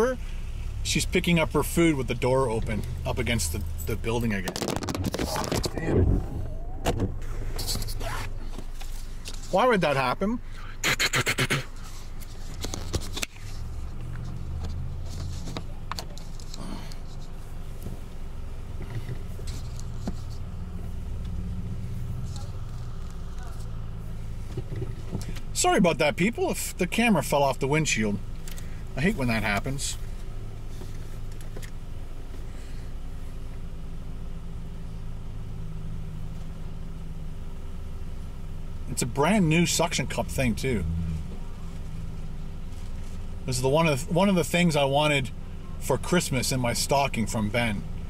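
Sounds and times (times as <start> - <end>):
car engine idling: 0.0 - 48.0
sharp clicks and knocks: 4.4 - 6.0.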